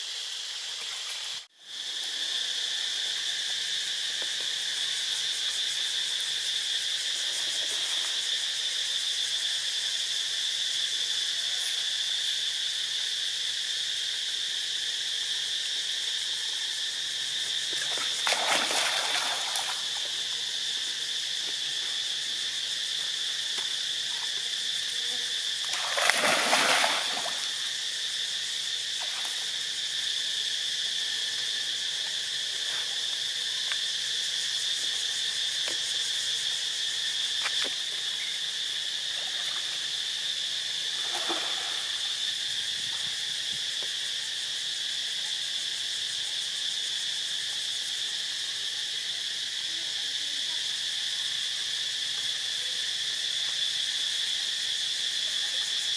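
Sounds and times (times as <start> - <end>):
insects droning: 0.0 - 55.9
water splashing: 17.8 - 20.2, 25.7 - 27.6.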